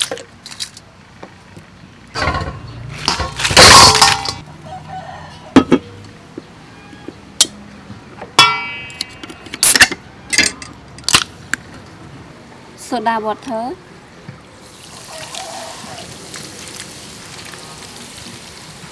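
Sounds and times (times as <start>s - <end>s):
crab shells clattering in metal bowl: 2.2s - 4.4s.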